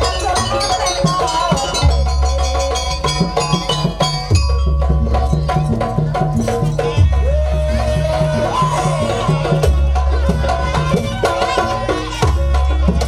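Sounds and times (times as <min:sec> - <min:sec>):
barrel drums beating: 0:00.0 - 0:13.0
pitched melody line: 0:00.0 - 0:13.0.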